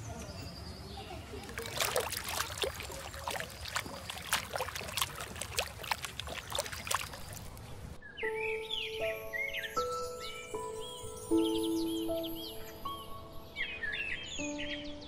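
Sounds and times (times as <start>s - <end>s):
birdsong: 0.0s - 15.0s
lioness lapping water: 1.3s - 7.9s
music: 8.0s - 15.0s.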